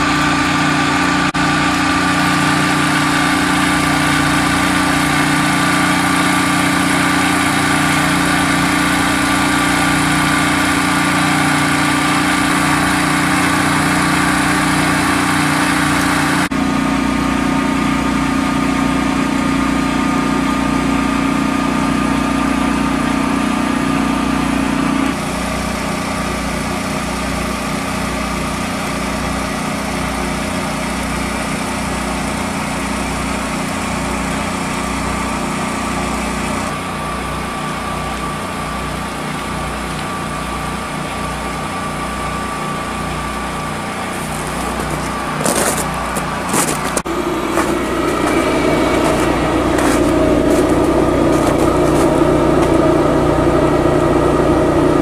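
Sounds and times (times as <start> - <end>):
engine idling: 0.0 - 55.0
slow low throb: 47.0 - 54.9.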